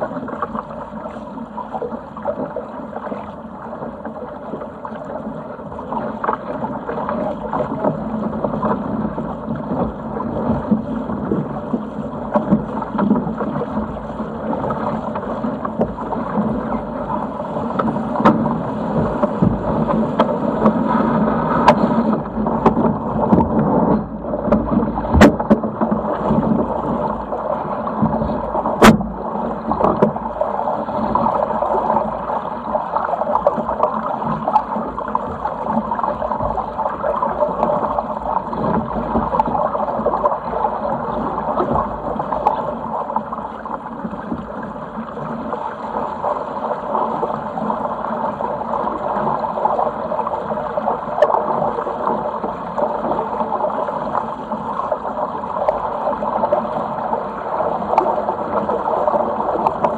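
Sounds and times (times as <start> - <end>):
water rushing along hull: 0.0 - 59.9.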